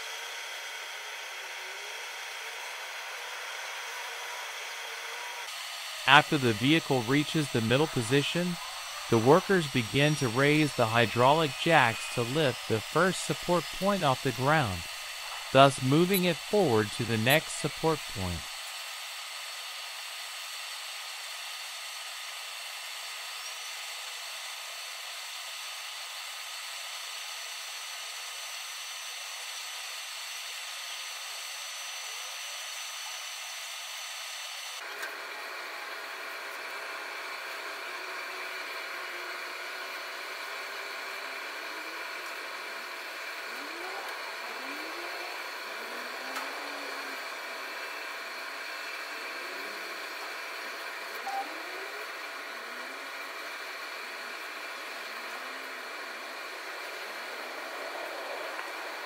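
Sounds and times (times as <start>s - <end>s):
machinery whirring and whining: 0.1s - 18.9s, 37.8s - 59.0s
faint high whine: 6.1s - 18.6s.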